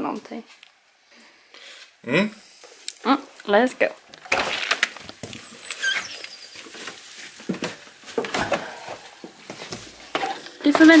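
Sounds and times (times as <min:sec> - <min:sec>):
sneakers rustling and knocking: 0:06.8 - 0:11.0.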